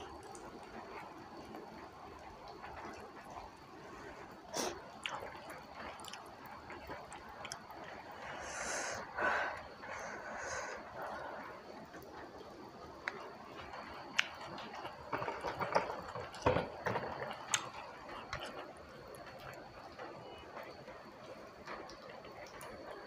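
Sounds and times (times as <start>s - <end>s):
wet chewing and mouth smacks: 4.9s - 8.2s, 17.5s - 20.4s
short hissing sounds: 8.2s - 10.8s.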